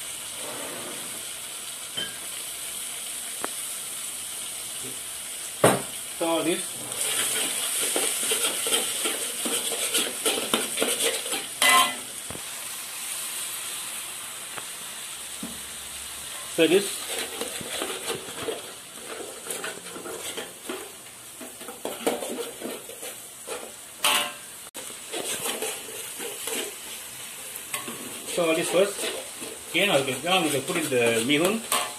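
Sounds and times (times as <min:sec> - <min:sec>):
food sizzling in a wok: 0:00.0 - 0:31.9
metal spatula scraping a pan: 0:00.4 - 0:01.3, 0:06.6 - 0:12.1, 0:16.3 - 0:31.9.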